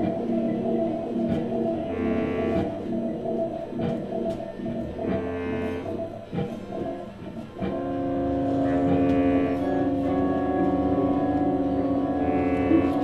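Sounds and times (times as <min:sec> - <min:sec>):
violin long held notes: 0:01.8 - 0:02.8, 0:07.6 - 0:13.0
guitar playing: 0:07.6 - 0:13.0.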